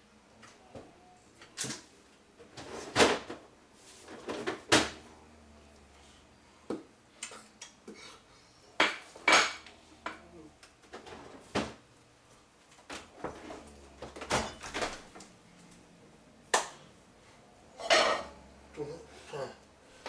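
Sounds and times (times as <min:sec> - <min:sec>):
refrigerator door opening and shutting: 0:02.5 - 0:03.4, 0:10.9 - 0:11.8, 0:12.8 - 0:15.2.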